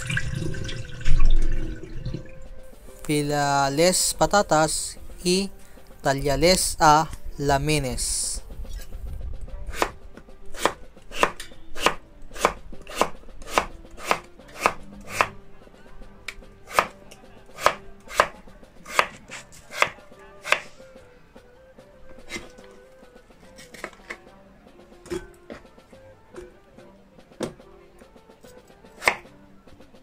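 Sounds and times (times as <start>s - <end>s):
knife slicing on wooden board: 9.7s - 15.4s, 16.7s - 17.0s, 17.6s - 20.7s, 22.2s - 22.6s, 29.0s - 29.3s.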